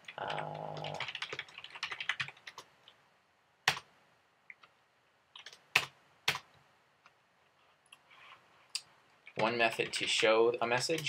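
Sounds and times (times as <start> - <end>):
computer keyboard typing: 0.0 - 3.0, 3.6 - 3.9, 5.4 - 6.6, 9.3 - 10.3.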